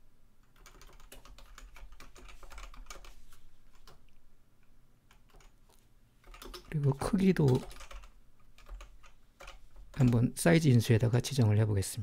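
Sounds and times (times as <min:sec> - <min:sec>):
computer keyboard typing: 0:00.4 - 0:04.1, 0:05.1 - 0:05.6, 0:06.2 - 0:10.4.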